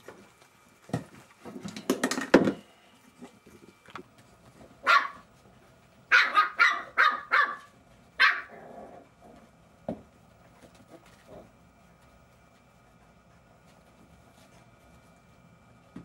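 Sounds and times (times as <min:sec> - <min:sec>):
puppies yapping: 0:06.1 - 0:08.6.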